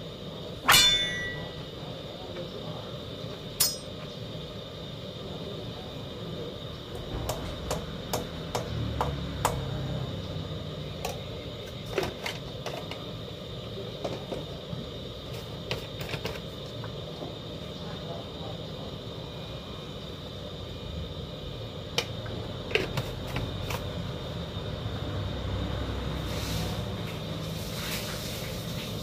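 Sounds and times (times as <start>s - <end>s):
faint high whine: 0.0s - 15.5s.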